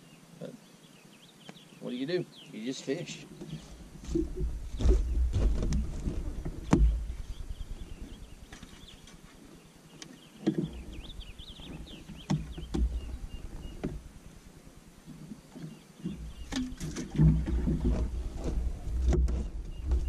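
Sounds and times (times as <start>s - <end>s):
knocks and thumps on boat: 3.4s - 8.9s, 10.4s - 20.0s
low rumble: 3.8s - 9.0s.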